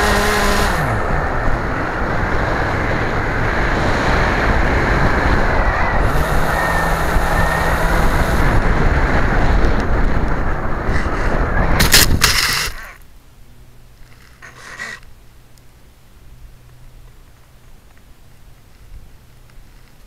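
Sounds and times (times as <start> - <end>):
small aircraft motor: 0.0 - 13.0, 14.1 - 15.1
wind rush: 0.0 - 13.0.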